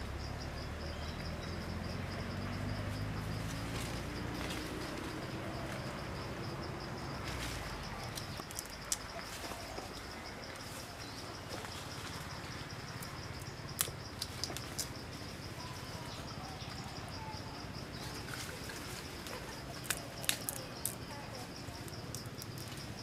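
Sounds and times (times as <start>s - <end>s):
high insect trill: 0.0s - 23.0s.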